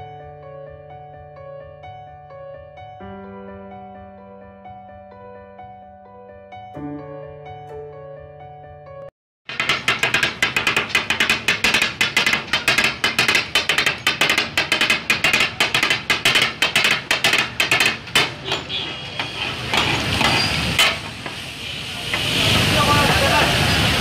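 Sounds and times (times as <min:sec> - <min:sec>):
metal spatulas clanging on griddle: 0:09.5 - 0:21.5
food frying hiss: 0:19.3 - 0:24.0.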